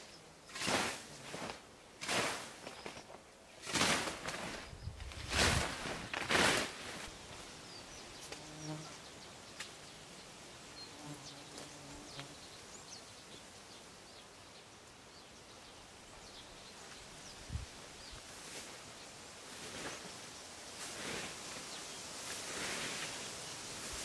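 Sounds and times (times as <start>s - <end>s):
scythe swishing through grass: 0.5s - 3.0s, 3.6s - 7.2s, 19.5s - 20.1s, 20.8s - 21.6s, 22.2s - 23.2s
flying insect buzzing: 5.2s - 12.5s.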